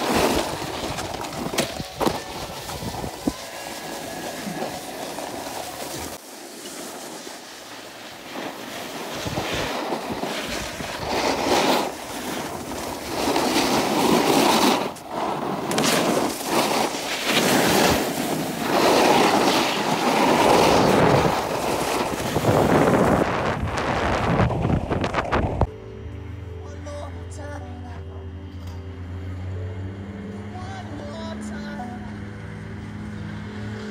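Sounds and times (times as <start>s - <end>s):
wind on microphone: 0.0s - 3.5s, 9.1s - 15.2s, 17.6s - 25.7s
snowboard scraping over snow: 0.0s - 25.7s.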